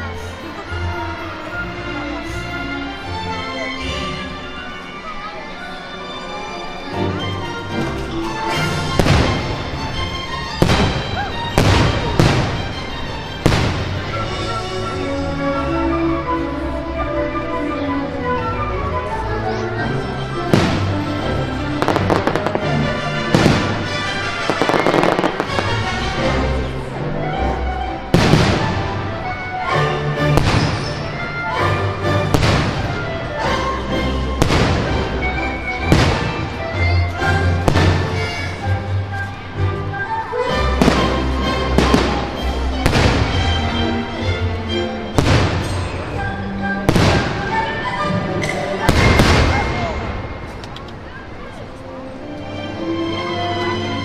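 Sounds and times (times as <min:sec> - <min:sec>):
music playing: 0:00.0 - 0:54.0
fireworks bursting: 0:08.8 - 0:14.6, 0:20.5 - 0:26.3, 0:28.1 - 0:29.1, 0:30.4 - 0:31.4, 0:32.2 - 0:33.1, 0:34.4 - 0:35.2, 0:40.8 - 0:43.8, 0:45.2 - 0:46.2, 0:46.8 - 0:47.8, 0:48.4 - 0:50.8.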